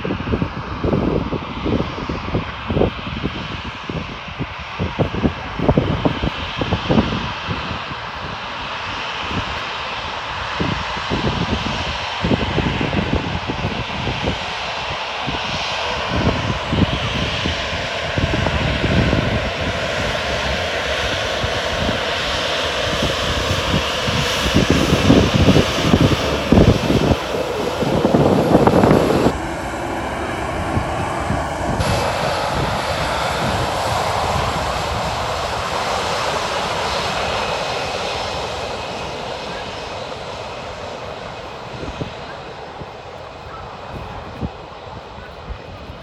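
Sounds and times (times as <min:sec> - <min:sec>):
jet engines whining: 0:00.0 - 0:46.0
low rumbles: 0:22.8 - 0:42.7.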